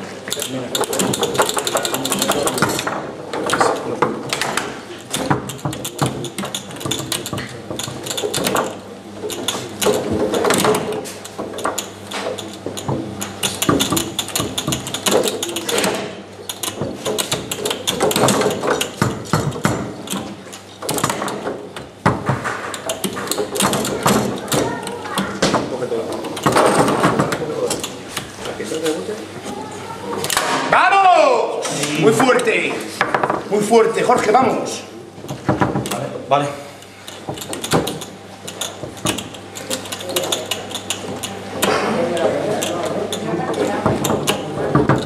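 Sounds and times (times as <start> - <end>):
foosball rods rattling: 0.0 - 30.9, 31.7 - 45.0
plastic figures knocking ball: 0.8 - 28.3, 37.2 - 45.0.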